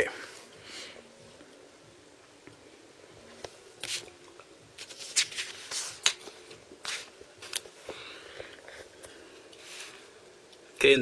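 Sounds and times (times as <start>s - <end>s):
paper sheets rustling: 4.8s - 7.6s.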